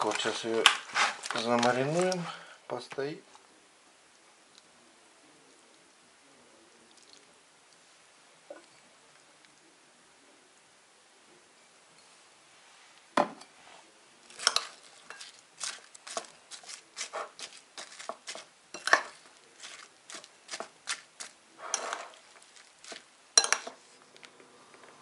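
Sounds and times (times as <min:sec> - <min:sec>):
metal fork scraping ceramic plate: 0:14.4 - 0:22.2.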